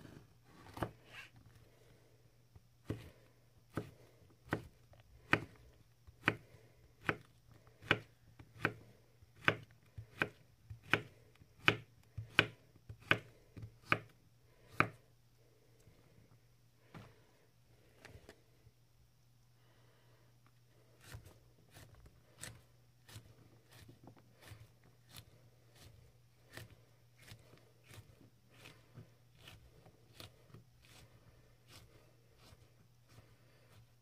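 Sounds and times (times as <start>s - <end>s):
knife chopping on wooden board: 3.7s - 5.6s, 6.2s - 8.8s, 9.4s - 14.1s.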